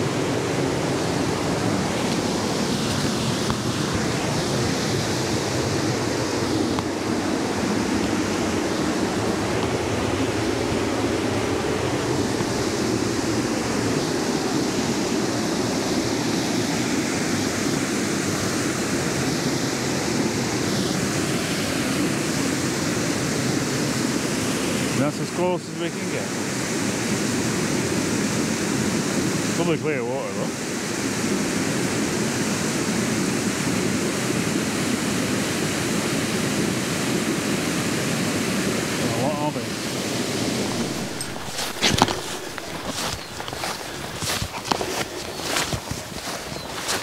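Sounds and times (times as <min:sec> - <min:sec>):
river water rushing: 0:00.0 - 0:29.7, 0:30.5 - 0:47.0.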